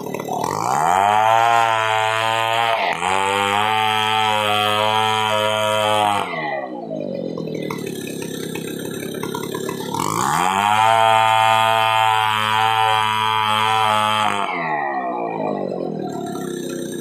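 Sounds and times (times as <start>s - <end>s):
chainsaw cutting a log: 0.0s - 17.0s.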